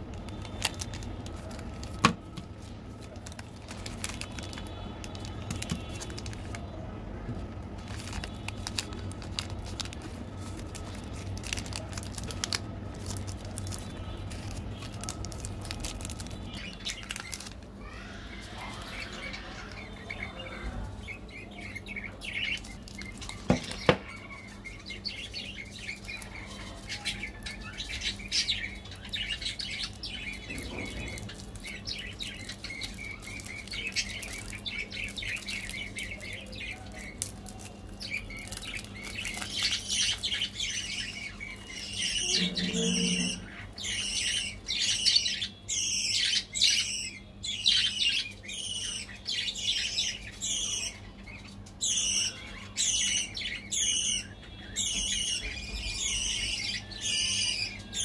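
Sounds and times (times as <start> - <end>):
plastic wrapper crinkling: 0.0 - 17.8, 22.0 - 43.5.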